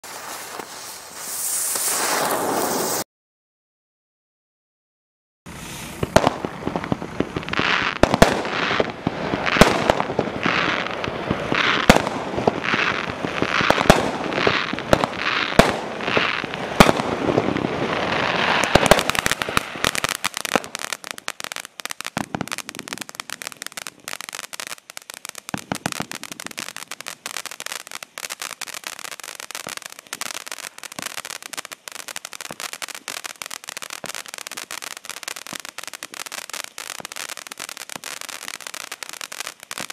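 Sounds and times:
firework fountain rushing and crackling: 0.0s - 3.1s, 5.5s - 39.9s
sharp cracks: 18.2s - 39.9s.

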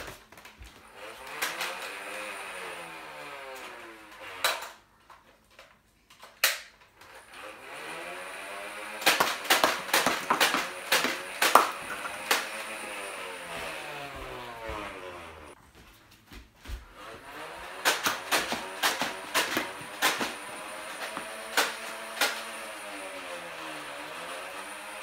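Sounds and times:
toy blaster firing darts: 1.2s - 2.1s, 8.8s - 13.0s, 17.6s - 22.9s
darts hitting cardboard and floor: 9.0s - 12.8s, 16.2s - 22.6s.

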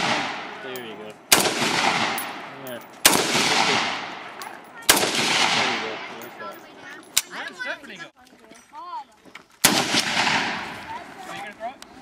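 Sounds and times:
rifle shots: 0.0s - 0.6s, 1.3s - 6.3s, 9.6s - 10.8s
gunshot echo: 0.0s - 0.7s, 1.3s - 4.3s, 4.9s - 6.2s, 9.6s - 10.8s.

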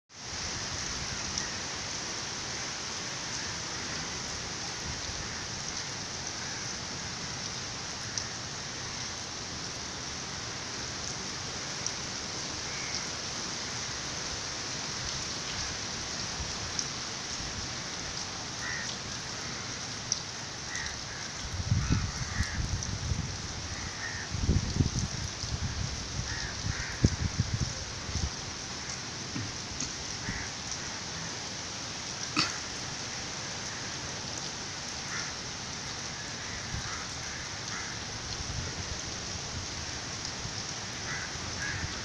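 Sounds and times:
rain on concrete roof: 0.1s - 42.0s.

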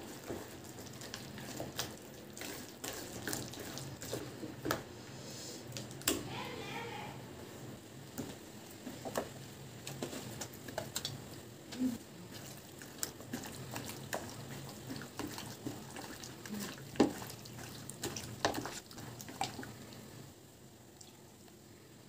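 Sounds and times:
hands squelching wet marinade: 0.0s - 4.4s, 12.3s - 20.1s.

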